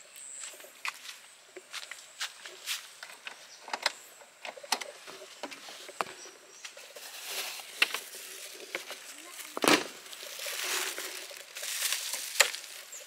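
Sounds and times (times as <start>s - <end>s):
rustling dry grass and leaves: 0.0s - 13.0s.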